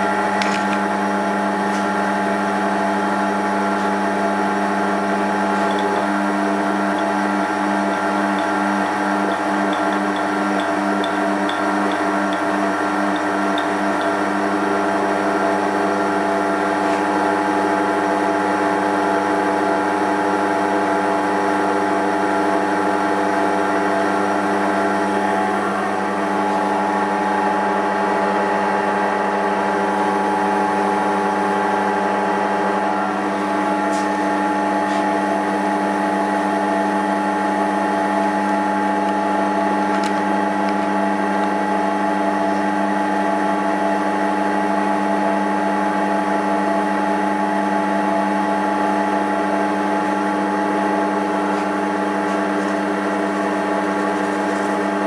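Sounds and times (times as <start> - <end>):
lathe motor humming: 0.0 - 55.0.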